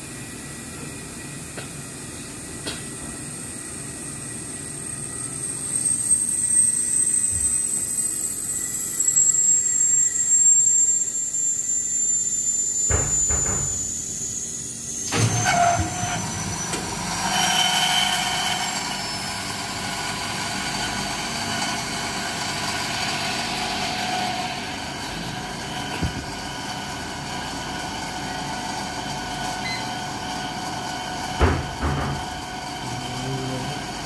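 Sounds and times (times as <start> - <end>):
steam sterilizer hissing: 0.0 - 17.2
machine tones from pipework: 0.0 - 34.0.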